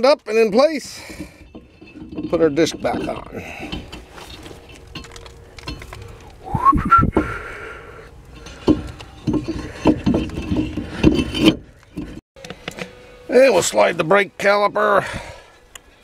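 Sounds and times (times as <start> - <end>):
metal scraping and knocking: 0.0 - 6.5, 8.1 - 12.8
whistle-like squeal: 6.5 - 7.4.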